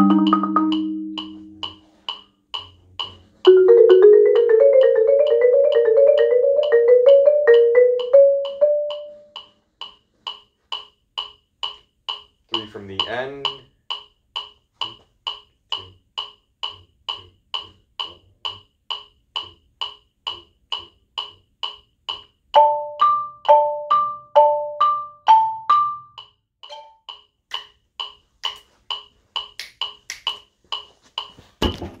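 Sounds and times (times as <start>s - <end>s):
marimba notes: 0.0s - 9.4s, 22.6s - 27.0s
metronome clicking: 0.0s - 31.5s.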